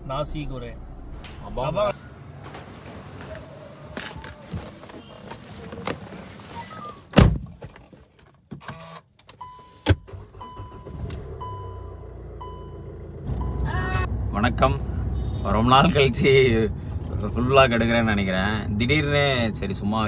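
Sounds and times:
car warning chime beeping: 8.8s - 14.0s.

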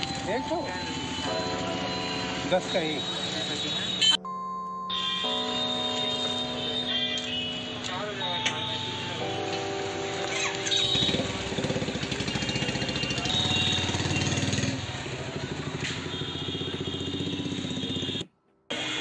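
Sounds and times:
small engine idling: 10.8s - 18.2s.

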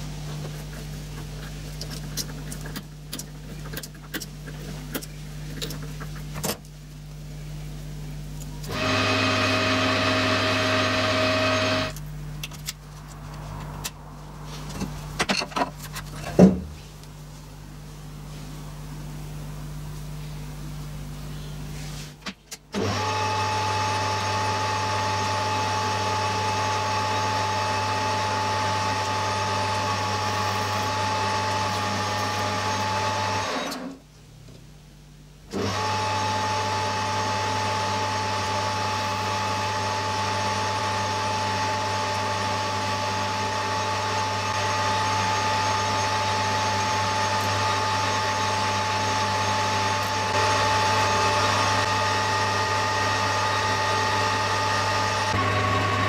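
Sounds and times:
metal lathe running: 8.7s - 12.0s, 36.0s - 56.0s.

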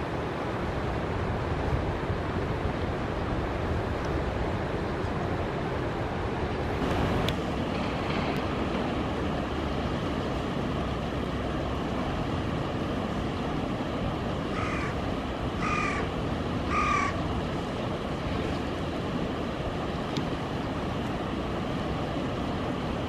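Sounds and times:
steady rushing noise: 0.0s - 23.0s
crow cawing: 14.5s - 15.0s, 15.6s - 16.1s, 16.7s - 17.2s.

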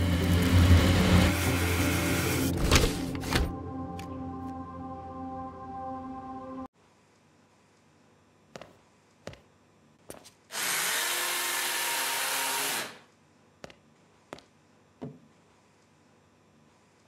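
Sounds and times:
small electric motor running: 10.5s - 13.0s.

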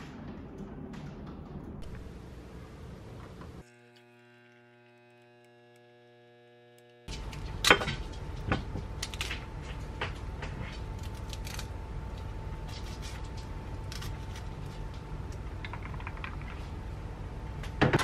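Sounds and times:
espresso machine humming: 1.8s - 8.3s.

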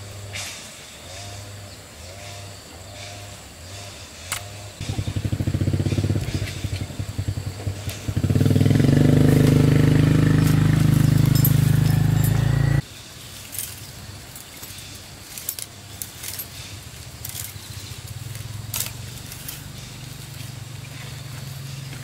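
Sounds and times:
small motor humming: 3.1s - 12.8s.

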